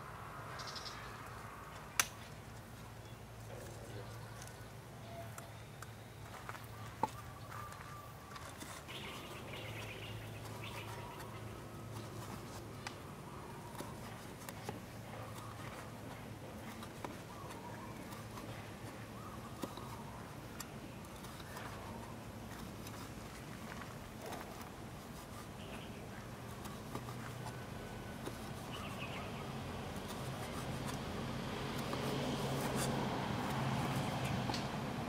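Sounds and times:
faint bird calls: 3.0s - 12.5s.

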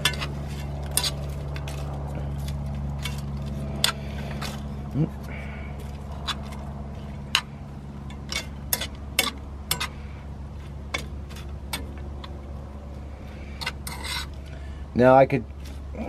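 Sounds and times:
fork scraping metal pan: 0.0s - 1.7s, 13.5s - 14.4s
low hum: 0.0s - 16.0s.

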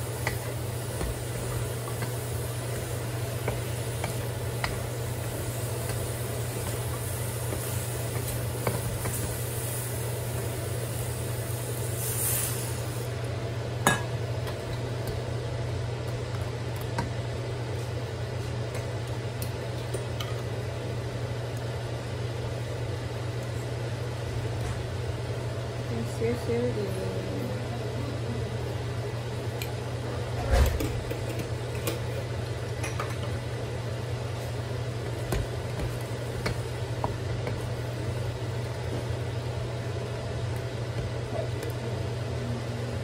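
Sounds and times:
meat and beans sizzling in a wok: 0.0s - 16.4s, 31.4s - 43.0s
steady low hum: 0.0s - 43.0s.

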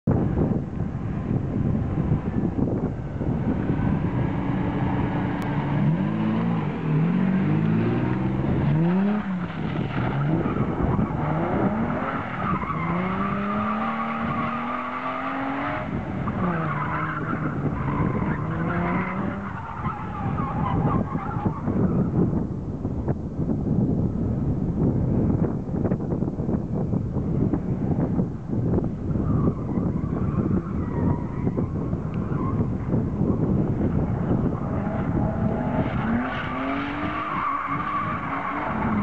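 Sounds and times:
wind buffeting microphone: 0.0s - 39.0s
car engine revving: 3.1s - 19.6s.

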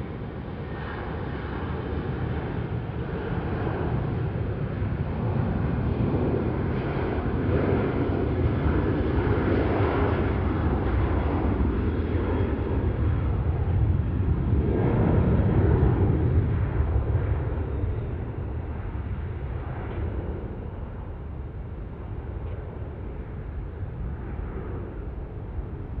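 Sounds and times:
jet engines rumbling: 0.0s - 26.0s.

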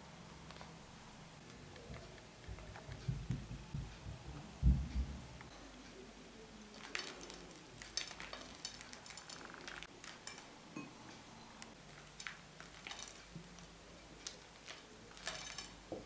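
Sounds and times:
nuts sprinkled on meringues: 6.6s - 10.5s, 11.6s - 16.0s.

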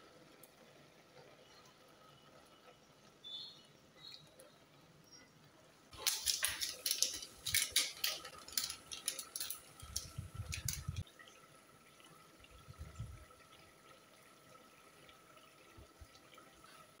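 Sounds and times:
utensil clinking against metal pot: 6.0s - 11.0s.

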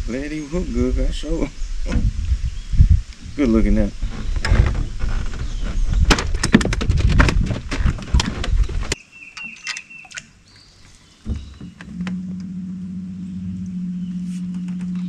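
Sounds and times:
low steady hum: 11.2s - 15.0s
low rumble: 11.3s - 15.0s.

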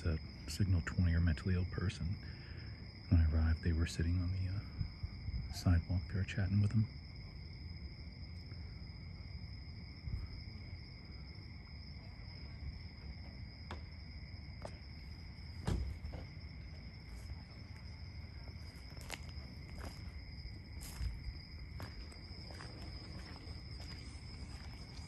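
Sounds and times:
crickets trilling: 0.0s - 25.0s
soft thump: 15.6s - 16.4s.

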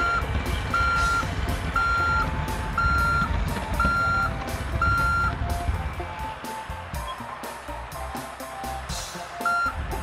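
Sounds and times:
reversing alarm beeping: 0.0s - 6.4s, 9.2s - 10.0s
low engine rumble: 0.0s - 10.0s.

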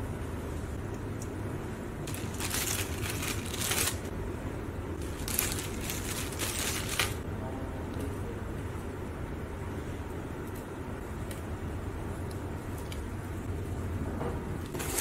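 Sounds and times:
steady low hum: 0.0s - 15.0s
plastic bag crinkling: 2.0s - 4.1s, 5.0s - 7.2s, 14.7s - 15.0s.

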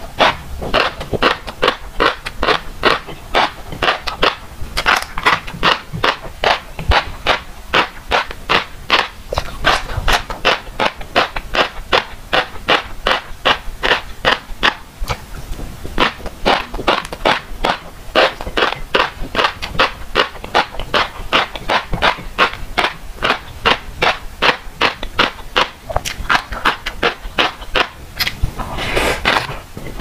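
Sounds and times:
chewing fish roe popping: 0.1s - 30.0s.

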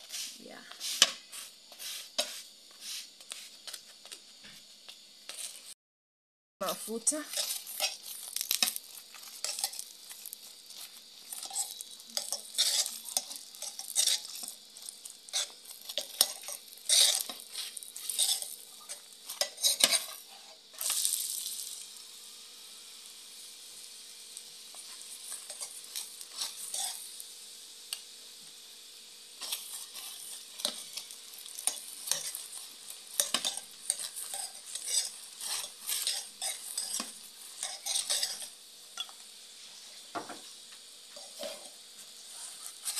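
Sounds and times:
metal spoon scraping a pan: 0.0s - 3.0s, 6.7s - 21.1s, 24.7s - 27.2s, 29.4s - 39.2s, 41.1s - 42.9s
flatbread frying in oil: 0.0s - 5.8s, 6.6s - 42.9s
oil sizzling: 0.0s - 5.8s, 6.6s - 42.9s.

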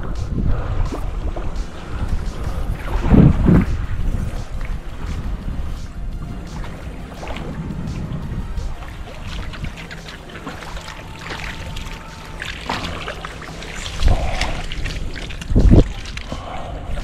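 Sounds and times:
low thumps: 0.0s - 10.6s
water splashing off mesh: 8.9s - 16.5s
net dragged through shallow water: 9.6s - 17.0s.

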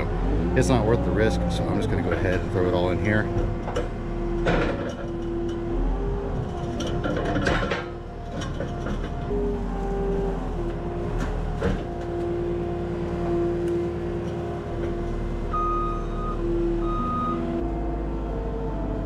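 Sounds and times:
loader engine running: 0.0s - 19.0s
metal clanks: 2.1s - 5.7s, 6.4s - 9.3s
reversing alarm beeps: 15.5s - 17.6s.

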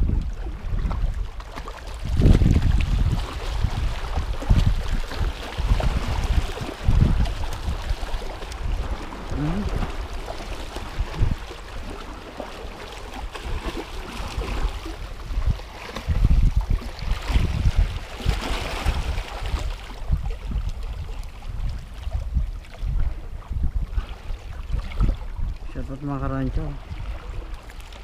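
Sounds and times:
wind buffeting microphone: 0.0s - 28.0s
sea water splashing on rocks: 0.8s - 20.8s.

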